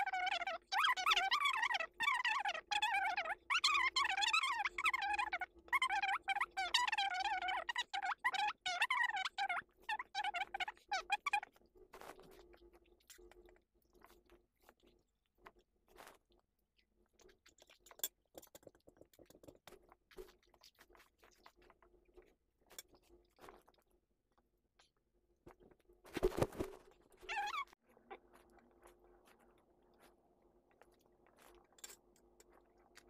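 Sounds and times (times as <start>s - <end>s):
person chewing: 11.3s - 24.4s, 27.4s - 33.0s.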